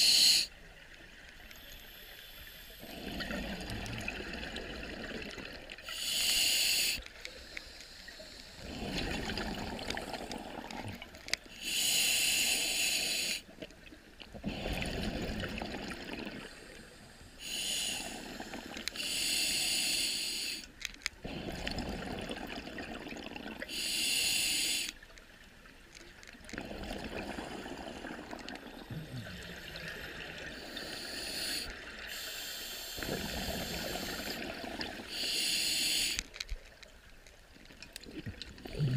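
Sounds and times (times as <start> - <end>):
regulator hissing inhale: 0.0 - 0.5, 5.8 - 9.0, 11.4 - 13.5, 16.4 - 21.7, 23.7 - 25.0, 28.8 - 36.3
exhaled bubbles bursting: 2.9 - 5.8, 8.6 - 11.2, 14.4 - 16.5, 21.3 - 23.6, 26.5 - 30.6, 38.0 - 38.9.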